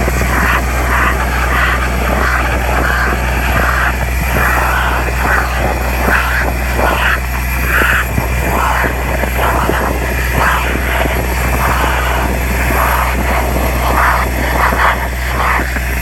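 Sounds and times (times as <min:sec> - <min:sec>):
air and soil rushing through pipe: 0:00.0 - 0:16.0
machine hum: 0:00.0 - 0:16.0.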